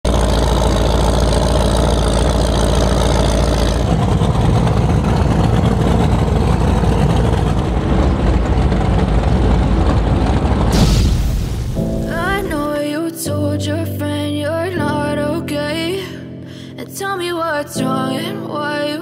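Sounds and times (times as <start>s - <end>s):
powerboat engines running: 0.0s - 12.7s
boat passing: 0.0s - 13.0s.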